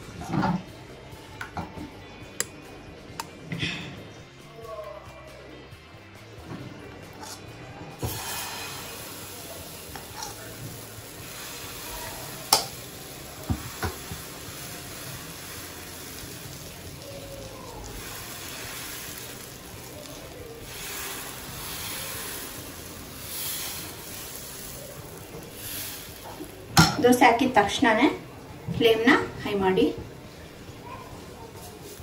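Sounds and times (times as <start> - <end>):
batter sizzling on a hot pan: 8.0 - 27.7, 31.5 - 32.0.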